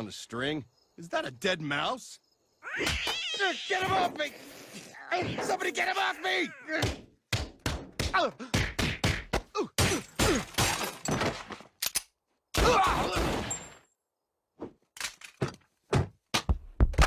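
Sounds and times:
cartoon thuds and blows: 6.8 - 10.8.

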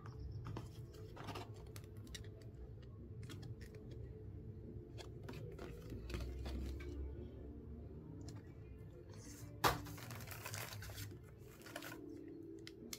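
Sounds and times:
paper card rustling and scraping: 0.4 - 2.5, 4.9 - 7.1, 9.1 - 12.1.

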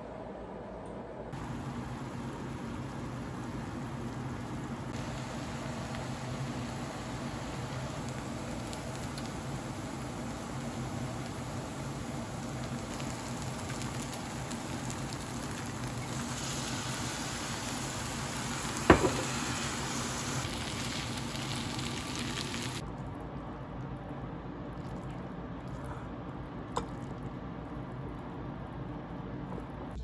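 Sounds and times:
noodles sizzling in a pan: 1.4 - 22.8
sharp knock: 18.9 - 19.3.

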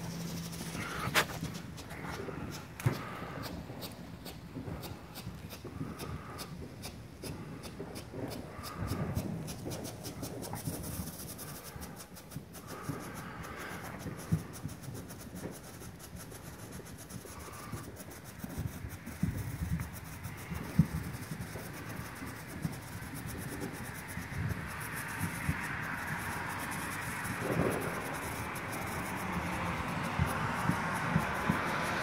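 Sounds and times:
strobe firework popping: 0.0 - 32.0.

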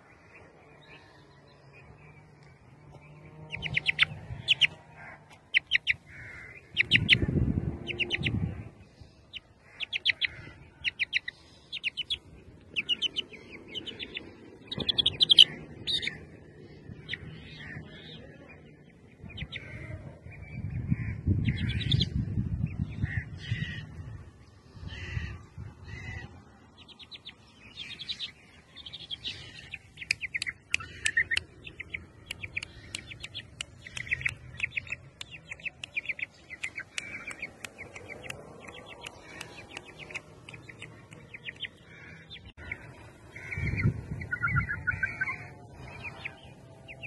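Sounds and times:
chick peeping: 3.0 - 16.3, 26.0 - 47.0.

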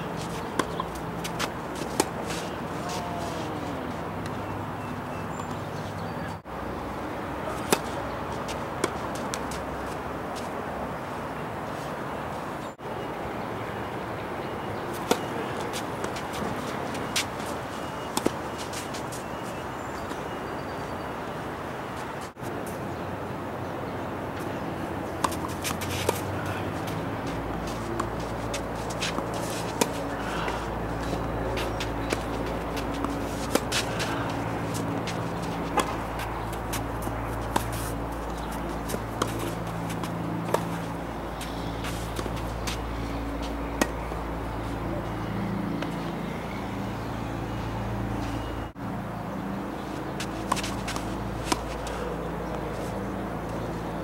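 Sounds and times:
outdoor background hum: 0.0 - 54.0
tennis ball hit and bouncing: 0.1 - 3.4, 7.4 - 9.7, 14.9 - 19.1, 25.0 - 44.6, 50.2 - 53.6.

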